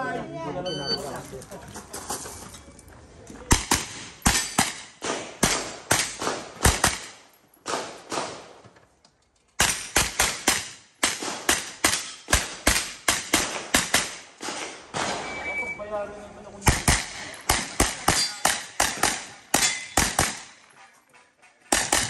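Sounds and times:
carbine gunshots with echo: 0:03.5 - 0:08.6, 0:09.6 - 0:15.4, 0:16.6 - 0:20.6, 0:21.7 - 0:22.0.

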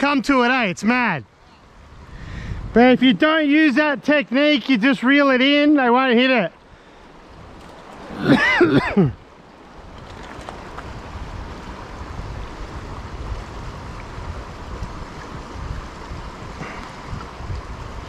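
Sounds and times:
shallow river rushing: 0:00.0 - 0:18.0
wind buffeting microphone: 0:01.6 - 0:03.4, 0:06.6 - 0:18.0.

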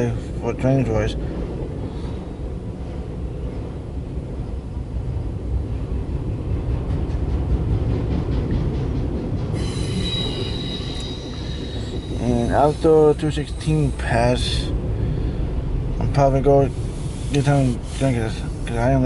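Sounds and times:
railcars rumbling: 0:00.0 - 0:19.0
train wheel squeal: 0:09.5 - 0:14.6, 0:16.7 - 0:18.9.

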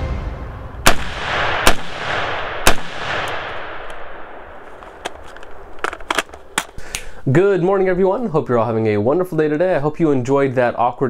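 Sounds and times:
rifle shots with rolling echo: 0:00.8 - 0:06.8.

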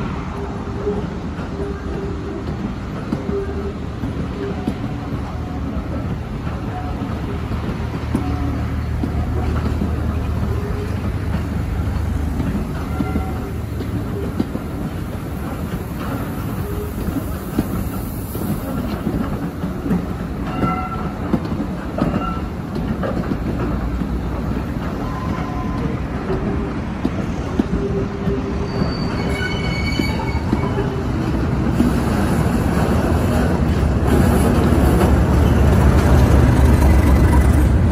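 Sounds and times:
train wheels rumbling on rails: 0:00.0 - 0:37.9
train wheels squealing: 0:12.8 - 0:14.5, 0:20.4 - 0:21.3, 0:22.0 - 0:22.6, 0:25.0 - 0:26.8, 0:27.7 - 0:31.3.

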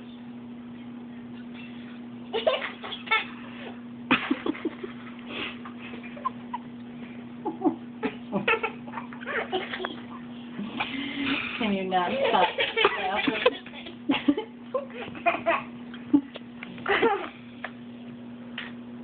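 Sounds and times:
steady low hum: 0:00.0 - 0:19.0
small child giggling: 0:02.3 - 0:05.1, 0:07.4 - 0:11.5, 0:12.1 - 0:17.4.

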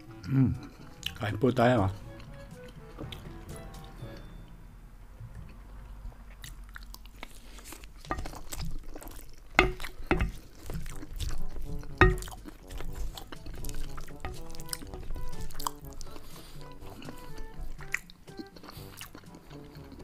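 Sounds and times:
wet chewing: 0:00.0 - 0:01.3, 0:05.5 - 0:20.0
spoon scraping ceramic plate: 0:09.6 - 0:10.5, 0:11.6 - 0:12.4.

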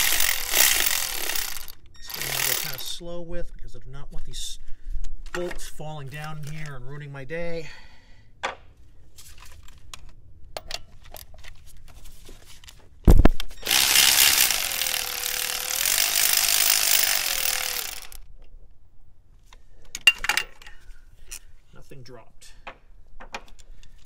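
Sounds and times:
electric ratchet wrench running: 0:00.0 - 0:02.9, 0:13.6 - 0:18.2.

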